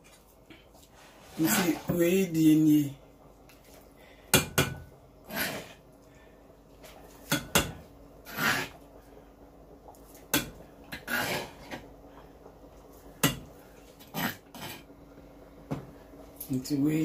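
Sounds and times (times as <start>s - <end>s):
metal spoon scraping bowl: 8.3s - 8.8s, 11.0s - 11.8s.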